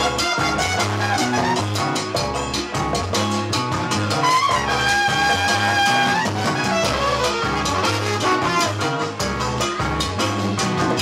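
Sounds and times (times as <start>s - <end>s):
latin soul band playing: 0.0s - 11.0s
horn long high note: 4.2s - 8.9s.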